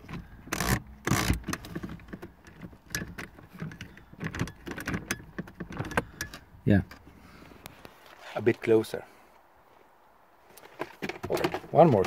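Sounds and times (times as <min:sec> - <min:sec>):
plastic parts clicking and rattling: 0:00.0 - 0:07.0.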